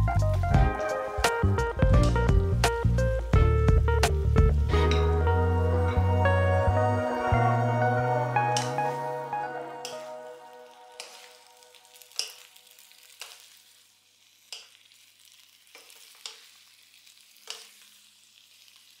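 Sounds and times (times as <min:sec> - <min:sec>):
vegetables sizzling in a wok: 0:08.6 - 0:19.0.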